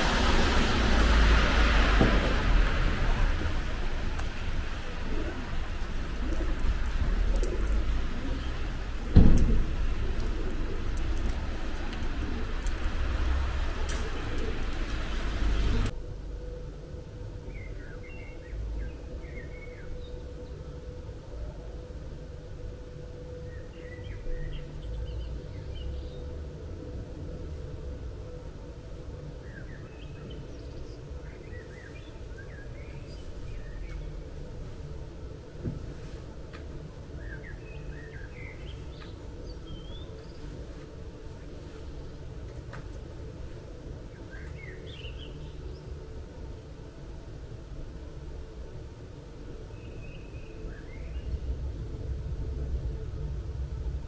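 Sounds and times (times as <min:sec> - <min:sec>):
faint steady hum: 0:00.0 - 0:54.0
songbirds chirping: 0:00.0 - 0:54.0
street ambience hiss and rumble: 0:00.0 - 0:54.0
birds chirping: 0:02.4 - 0:15.9, 0:36.8 - 0:40.6.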